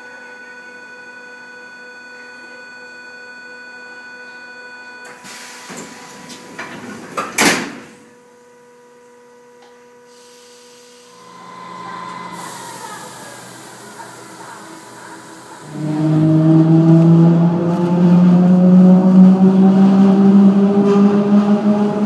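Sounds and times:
train doors slamming shut: 0:05.1 - 0:08.0
train doors rattling: 0:05.6 - 0:08.0
electric motor whine: 0:11.1 - 0:13.6.

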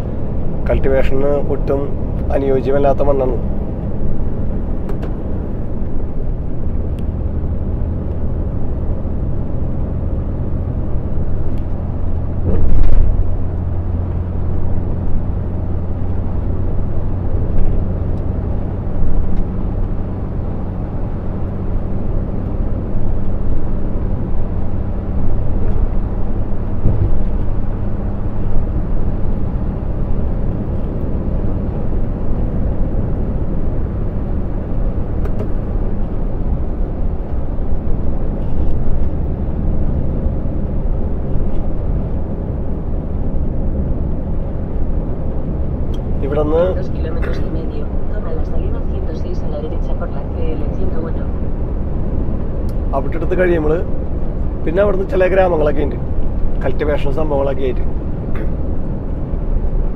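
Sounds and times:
truck diesel engine drone: 0:00.0 - 0:59.9
loud thud: 0:26.8 - 0:27.2.

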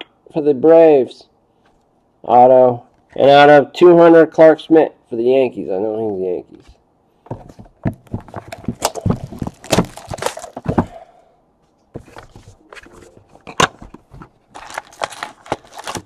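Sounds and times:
cardboard box and foil packs rustling: 0:08.0 - 0:11.0, 0:12.0 - 0:16.0.

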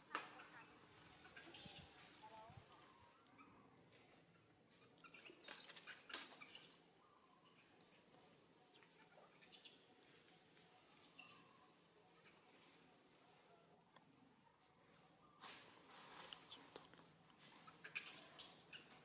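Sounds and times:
soft clicks and rustles: 0:14.9 - 0:19.0.

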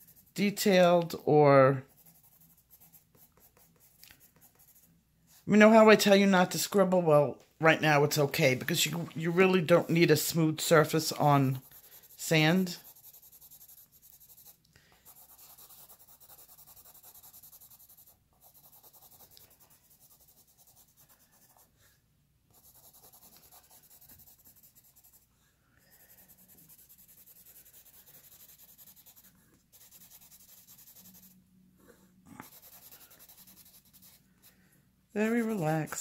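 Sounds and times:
pencil scribbling on paper: 0:00.0 - 0:04.9, 0:09.6 - 0:21.8, 0:22.5 - 0:25.3, 0:25.9 - 0:31.4, 0:32.4 - 0:34.2, 0:35.2 - 0:36.0.

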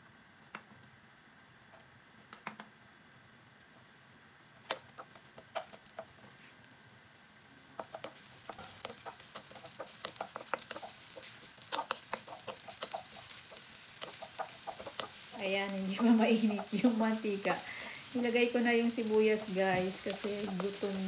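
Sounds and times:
faint oil sizzle: 0:00.0 - 0:21.0
wooden spoon stirring onion in wok: 0:04.8 - 0:06.7, 0:07.3 - 0:21.0.

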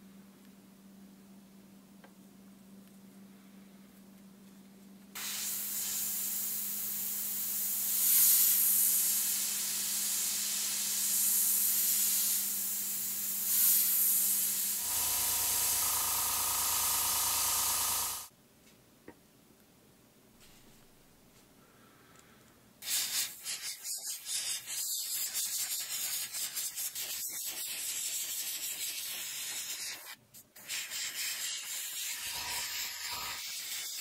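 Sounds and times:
airbrush air hiss: 0:05.2 - 0:18.3, 0:22.8 - 0:34.0.

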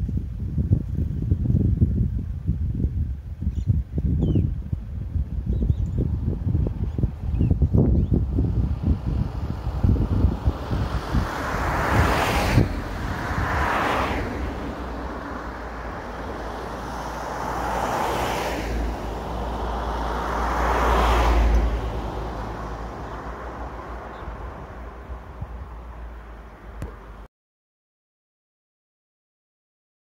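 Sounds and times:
wind buffeting microphone: 0:00.0 - 0:27.2
vehicles driving past: 0:04.7 - 0:27.3.

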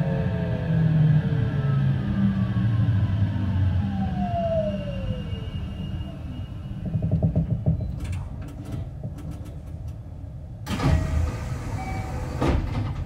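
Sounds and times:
electric train inverter whine: 0:00.0 - 0:08.1
train running rumble: 0:04.9 - 0:11.5.

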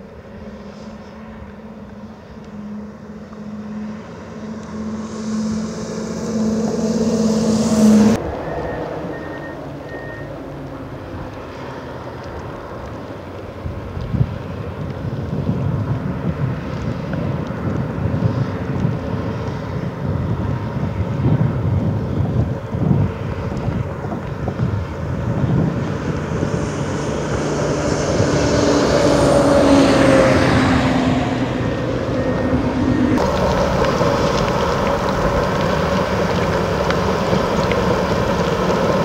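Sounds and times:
different engine sound: 0:00.0 - 0:12.2, 0:23.4 - 0:39.0
diesel engine low rumble: 0:00.0 - 0:39.0
louder engine revving: 0:01.6 - 0:09.5, 0:26.1 - 0:39.0.

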